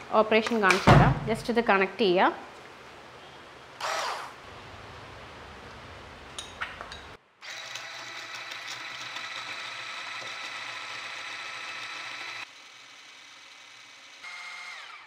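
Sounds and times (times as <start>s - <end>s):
hand blender motor whining: 3.8s - 4.4s, 7.4s - 15.0s.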